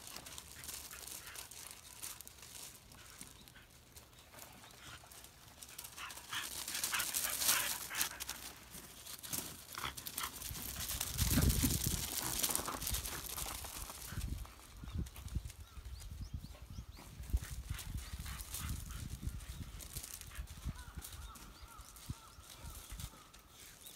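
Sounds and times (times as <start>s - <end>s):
gravel crunching: 0.0s - 14.9s.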